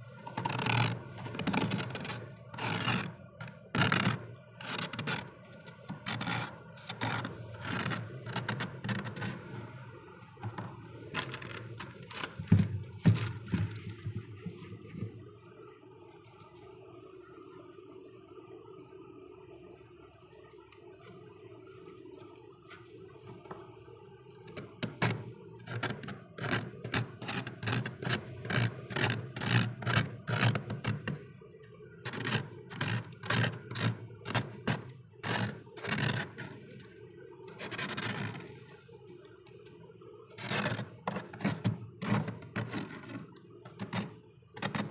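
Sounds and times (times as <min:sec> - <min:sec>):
faint steady hum: 0:00.0 - 0:44.9
frost scraped by hand: 0:00.3 - 0:09.8, 0:11.1 - 0:15.0, 0:24.5 - 0:31.4, 0:32.0 - 0:36.8, 0:40.4 - 0:44.9.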